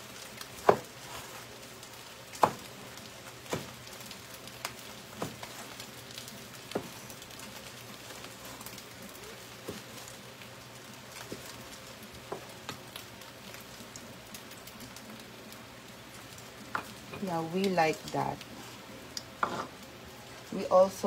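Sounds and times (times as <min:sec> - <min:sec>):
faint frying sizzle: 0:00.0 - 0:21.0
cleaver chopping on wooden board: 0:00.6 - 0:00.9, 0:02.4 - 0:02.7.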